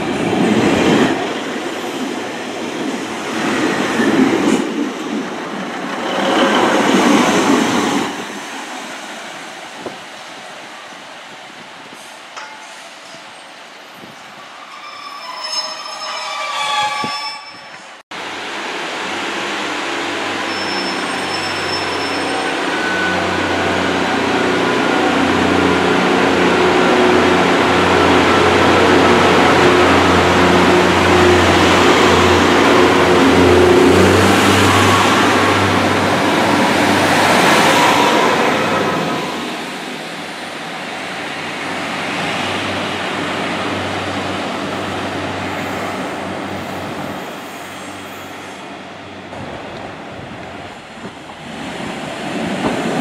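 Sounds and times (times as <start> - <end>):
diesel train approaching: 0.0 - 53.0
diesel train passing: 17.7 - 53.0.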